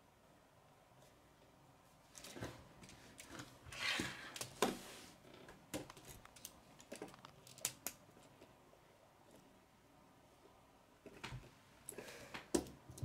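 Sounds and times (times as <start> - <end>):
plastic pieces clicking and rattling: 5.8 - 8.0.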